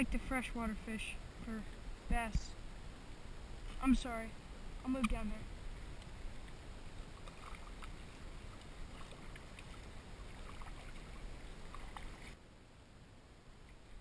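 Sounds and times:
water lapping around kayak: 0.0 - 12.4
faint light ticks: 13.6 - 14.0.

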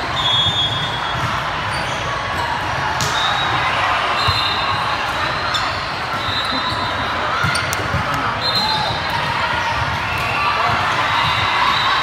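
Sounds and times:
sneaker squeaks: 0.0 - 9.0.

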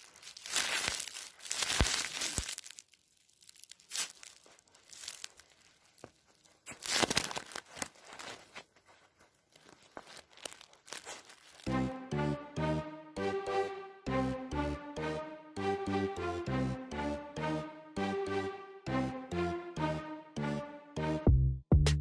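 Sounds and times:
puppy tearing a plush toy: 0.0 - 2.8, 6.6 - 8.7, 9.6 - 11.7.

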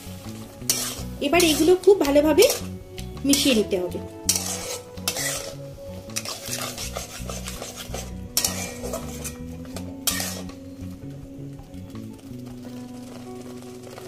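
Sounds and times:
faint background music: 0.0 - 14.0
spatula scraping a pan: 0.5 - 10.7.

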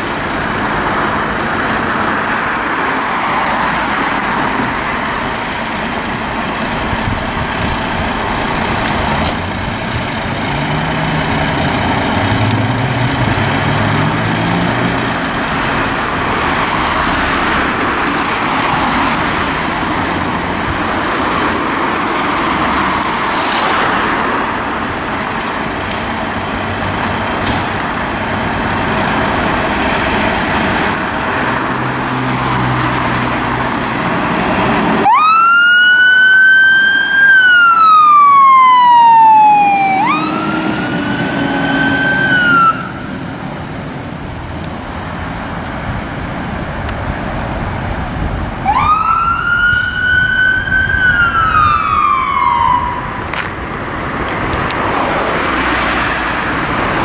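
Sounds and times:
fire engine rumbling: 0.0 - 57.0
siren wailing: 35.0 - 43.1, 48.6 - 53.2.

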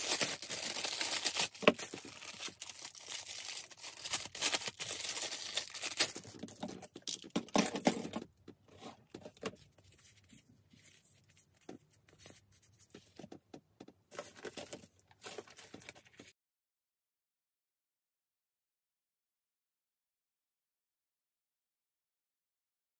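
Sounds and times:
plastic bag crinkling and tearing: 0.0 - 7.3.

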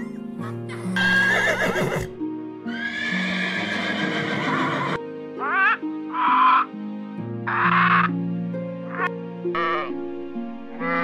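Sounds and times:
background music: 0.0 - 11.0
horse whinnying: 1.0 - 2.1, 2.7 - 6.6.

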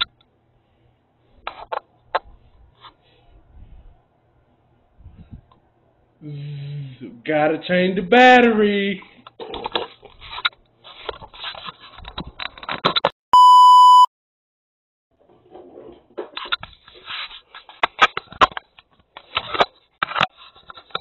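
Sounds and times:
device handling rustles and clicks: 1.4 - 3.0, 9.2 - 13.1, 15.5 - 21.0
loud bleep tone: 13.4 - 14.1.

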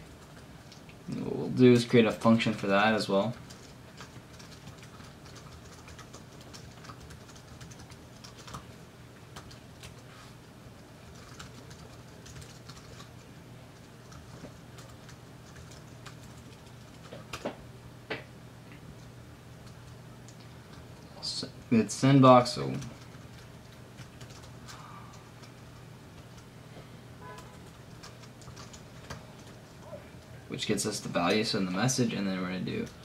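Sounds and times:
faint low hum: 0.0 - 33.0
typing on computer keyboard: 3.4 - 8.7, 9.3 - 10.0, 11.1 - 13.2, 13.8 - 17.4, 22.7 - 24.8, 27.4 - 29.8.

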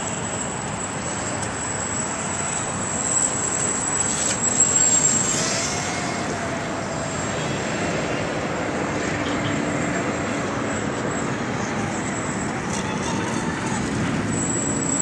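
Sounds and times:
distant model boat motor whining: 0.0 - 8.6.

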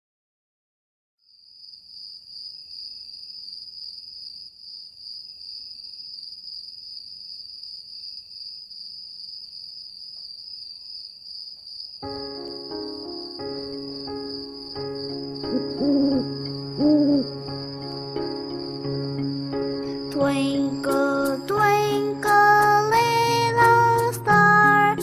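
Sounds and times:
music notes: 12.0 - 25.0.

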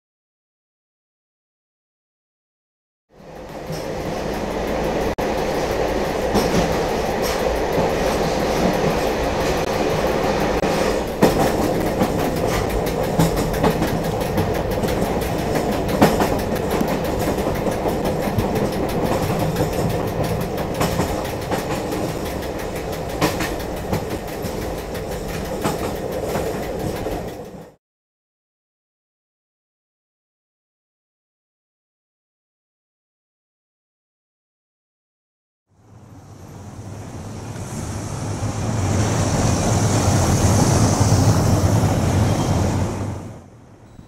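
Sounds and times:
train rumbling on rails: 3.1 - 27.8, 35.7 - 44.0
wheels clicking over rail joints: 3.2 - 27.8.

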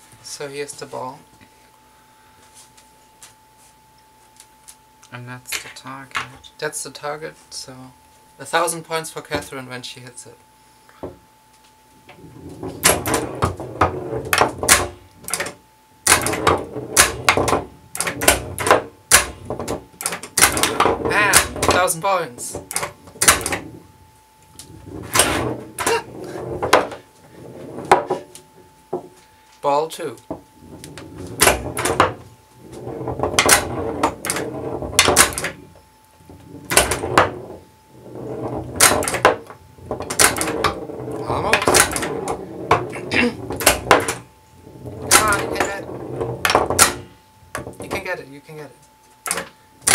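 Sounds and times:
steel ball rolling and knocking: 12.1 - 29.2, 30.2 - 48.1
pinball flippers clacking: 12.2 - 23.8, 24.6 - 27.0, 30.6 - 35.7, 36.4 - 48.1, 49.3 - 49.9.

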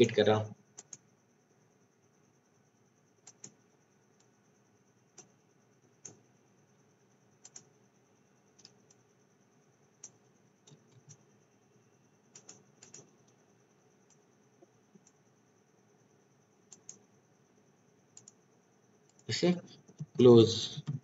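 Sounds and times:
faint high-pitched hiss: 0.0 - 21.0
computer mouse clicks: 0.8 - 1.0, 3.2 - 3.6, 5.1 - 5.4, 6.0 - 6.2, 7.4 - 7.7, 8.6 - 9.0, 10.0 - 11.2, 12.3 - 13.4, 14.0 - 14.2, 14.9 - 15.2, 16.7 - 17.1, 18.1 - 18.4, 19.0 - 19.3.

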